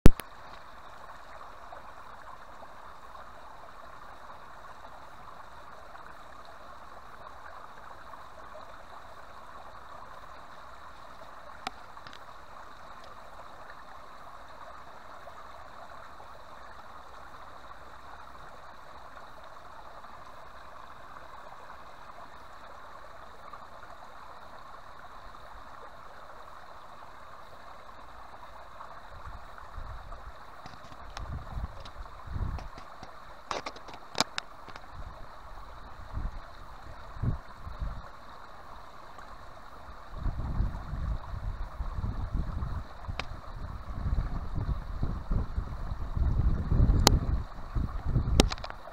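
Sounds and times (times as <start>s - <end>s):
stream trickling over stones: 0.0s - 48.9s
wind rumble on microphone: 29.1s - 33.1s, 34.7s - 38.1s, 40.0s - 48.9s.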